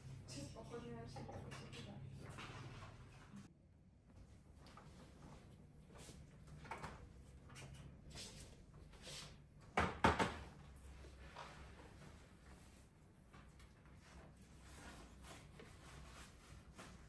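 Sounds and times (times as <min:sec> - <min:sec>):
laptop knocking on desk: 0:09.8 - 0:10.4.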